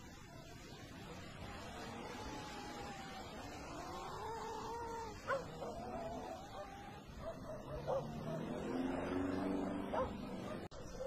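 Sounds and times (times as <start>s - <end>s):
animal whining: 0.2s - 9.0s.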